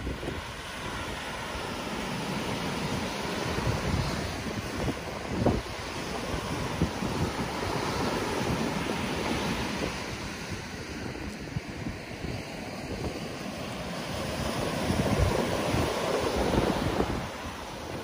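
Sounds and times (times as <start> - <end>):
surf washing up beach: 0.0 - 18.0
wind buffeting microphone: 0.0 - 18.0.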